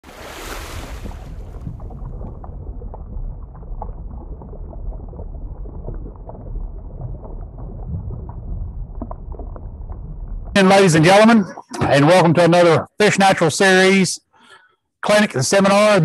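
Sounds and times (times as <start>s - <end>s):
bubbling pops: 0.1s - 10.6s
muffled underwater rumble: 1.0s - 10.6s.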